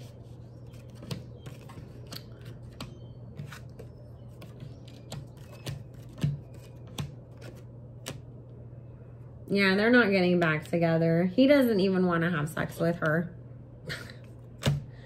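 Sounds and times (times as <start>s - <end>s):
cards being shuffled: 0.0s - 8.2s
steady low hum: 0.0s - 15.0s.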